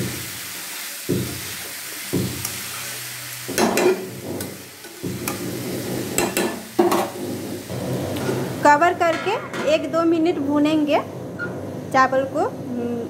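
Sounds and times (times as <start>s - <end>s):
frying sizzle: 0.0s - 10.9s
metal spatula scraping pan: 3.7s - 9.8s.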